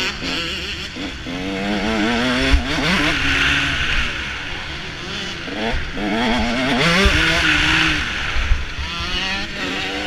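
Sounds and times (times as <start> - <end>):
motocross bike engine: 0.0 - 10.0
wind buffeting microphone: 5.5 - 9.5.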